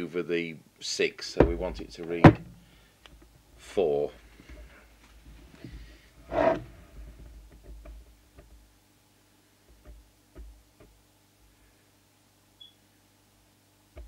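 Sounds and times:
faint steady hum: 0:00.0 - 0:14.0
faint clicks and taps: 0:09.7 - 0:11.0.

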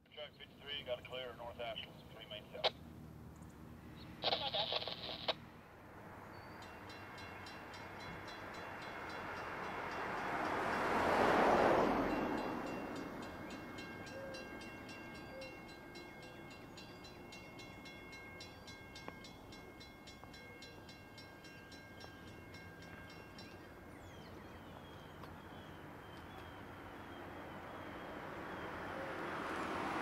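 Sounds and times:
car driving past: 0:08.2 - 0:14.0, 0:25.1 - 0:30.0
bird chirps: 0:23.4 - 0:29.2.

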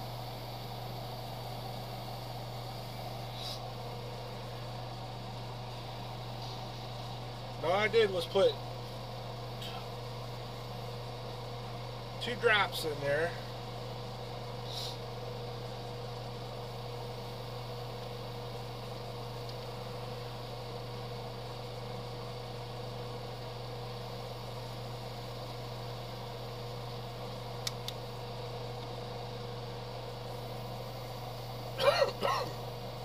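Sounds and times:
air hissing: 0:00.0 - 0:04.4, 0:05.7 - 0:07.4, 0:14.6 - 0:15.2
small electric motor humming: 0:00.0 - 0:33.0.

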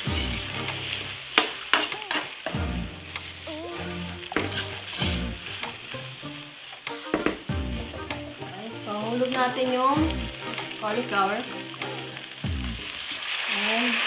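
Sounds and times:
vegetables sizzling in a wok: 0:00.0 - 0:14.0
metal spoon striking pan: 0:01.4 - 0:02.3, 0:04.4 - 0:05.2.

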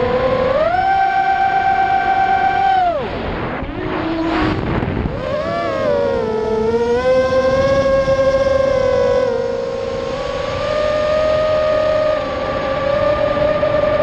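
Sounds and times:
drone motors and propellers whining: 0:00.0 - 0:14.0.

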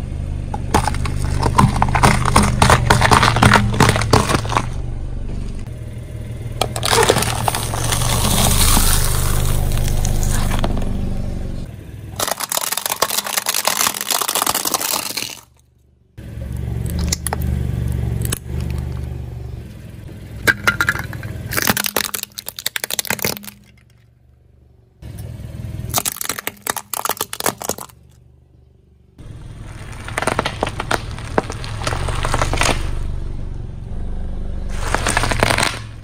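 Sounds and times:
car engine running low: 0:00.0 - 0:36.0
objects crackling and snapping: 0:00.5 - 0:04.8, 0:06.6 - 0:10.9, 0:12.2 - 0:15.6, 0:20.5 - 0:24.0, 0:25.9 - 0:28.1, 0:29.6 - 0:33.1, 0:34.7 - 0:36.0.

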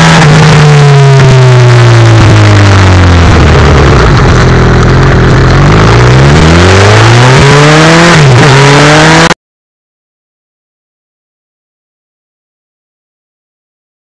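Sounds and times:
heavy wind noise: 0:00.0 - 0:08.7
motorcycle engine revving: 0:00.0 - 0:09.4
road noise: 0:00.0 - 0:09.4.

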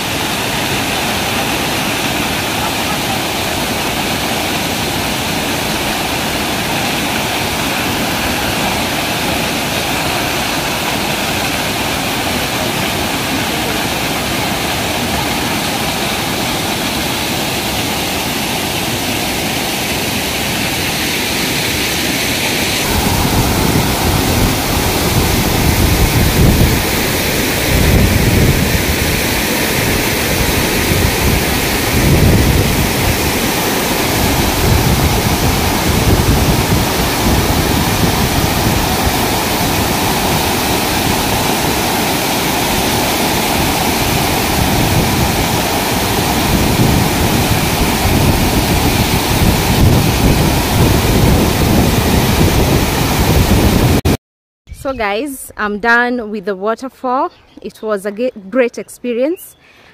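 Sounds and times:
waterfall crashing into pool: 0:00.0 - 0:54.2
low rumble in gusts: 0:22.8 - 0:42.0, 0:42.6 - 0:54.1.

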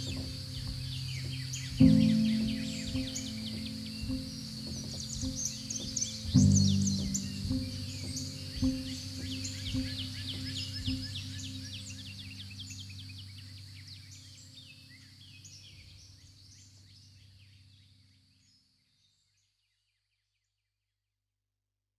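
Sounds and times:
low steady drone: 0:00.0 - 0:14.7
birds chirping: 0:00.0 - 0:17.0.

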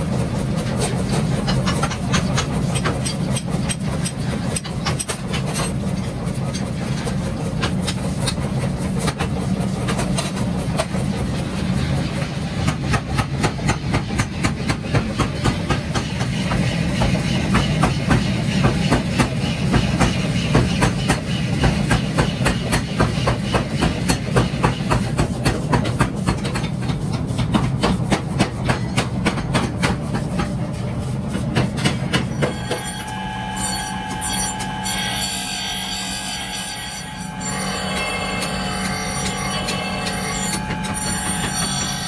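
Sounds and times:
power hammer pounding metal: 0:12.6 - 0:30.2, 0:31.6 - 0:42.0
low machine hum: 0:28.6 - 0:42.0
electric grinder whine: 0:32.4 - 0:42.0.

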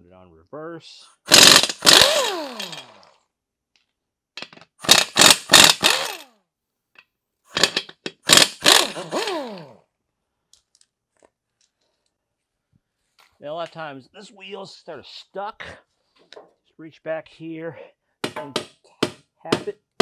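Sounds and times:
air impact wrench hammering: 0:01.3 - 0:03.0, 0:04.4 - 0:06.3, 0:07.5 - 0:09.8.

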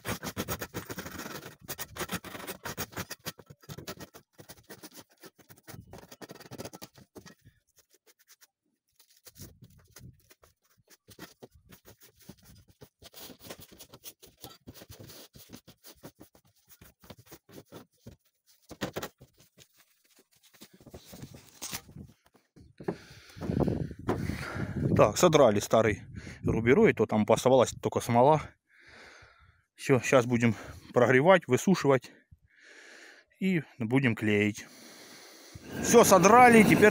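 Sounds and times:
roofing felt scraping and tearing: 0:00.0 - 0:22.0, 0:35.5 - 0:36.9.

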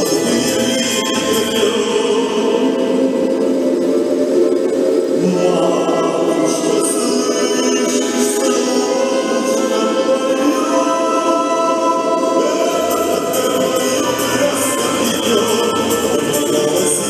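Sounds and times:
choir singing sustained notes: 0:00.0 - 0:17.0.

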